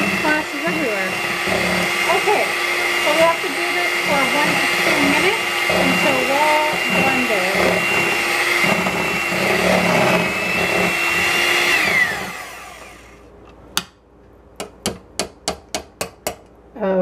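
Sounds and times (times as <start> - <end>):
electric hand mixer whine: 0.0 - 13.3.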